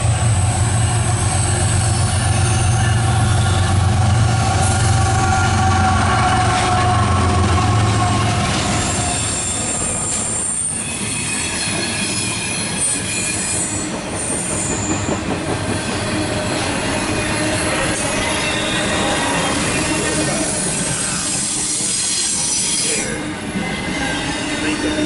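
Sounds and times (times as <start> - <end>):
locomotive engine drone: 0.0 - 11.2
train wheel and rail noise: 0.0 - 25.0
high-pitched wheel squeal: 4.6 - 15.2.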